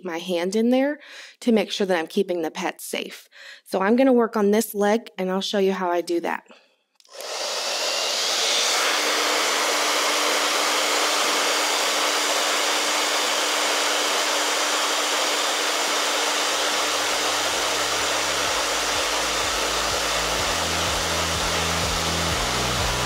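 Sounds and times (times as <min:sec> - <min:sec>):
hair dryer running: 0:07.0 - 0:23.0.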